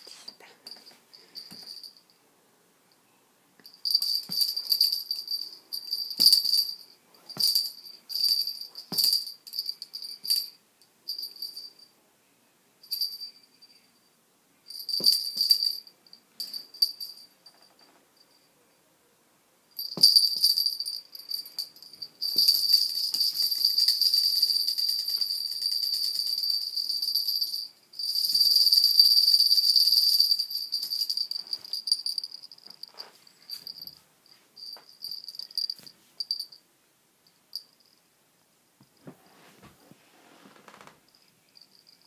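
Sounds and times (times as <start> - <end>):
jingle bell shaken: 0.7 - 2.0, 3.6 - 11.9, 12.8 - 13.7, 14.7 - 17.4, 19.8 - 36.6, 41.1 - 42.0.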